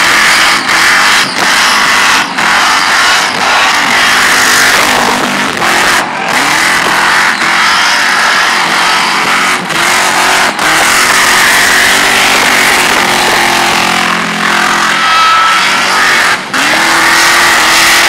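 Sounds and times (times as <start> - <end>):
car engine at high revs: 0.0 - 18.0.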